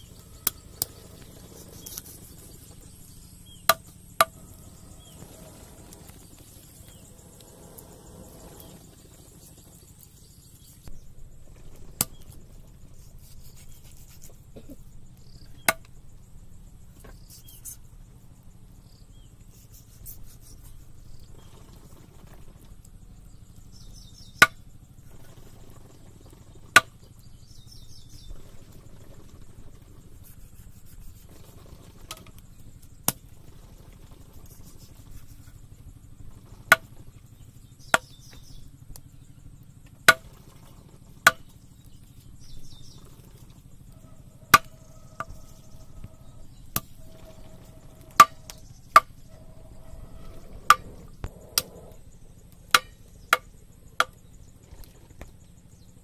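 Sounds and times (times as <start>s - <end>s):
knife chopping on wood: 41.2s - 41.5s, 44.5s - 45.4s, 52.7s - 53.4s.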